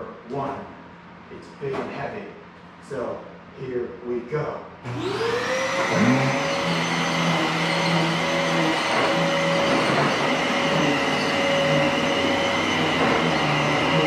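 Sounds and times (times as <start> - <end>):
vacuum cleaner motor whine: 4.8 - 14.0.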